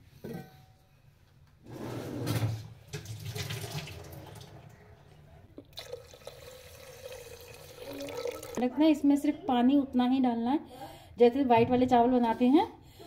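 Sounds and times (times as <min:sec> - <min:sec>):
water running from a tap: 0:02.9 - 0:04.7, 0:05.8 - 0:08.6
water pouring into a pot: 0:02.9 - 0:04.8, 0:05.7 - 0:08.6.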